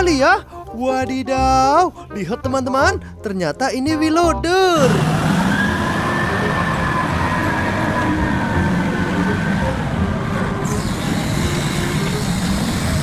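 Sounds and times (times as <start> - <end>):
diesel engine rumbling under load: 4.8 - 13.0
faint high whine: 5.0 - 13.0.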